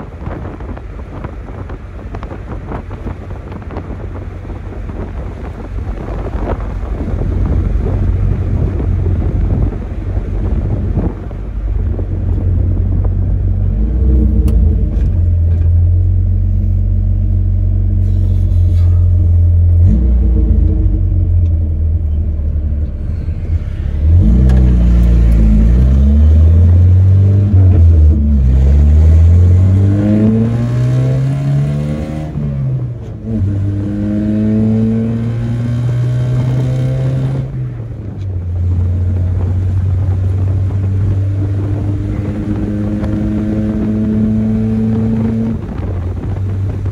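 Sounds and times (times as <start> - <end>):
pickup engine revving through gears: 4.9 - 16.4, 17.7 - 22.1, 22.8 - 46.9.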